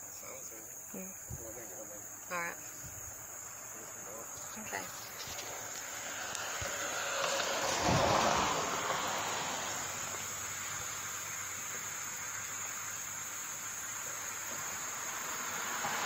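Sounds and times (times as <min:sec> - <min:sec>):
insects droning in trees: 0:00.0 - 0:16.0
broad rushing noise: 0:03.7 - 0:16.0.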